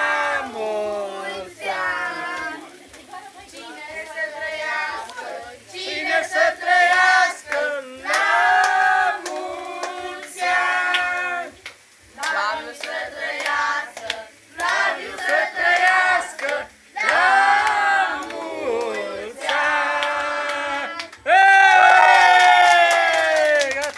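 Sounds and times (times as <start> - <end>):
group singing: 0.0 - 21.3
hands clapping in time: 6.9 - 23.9.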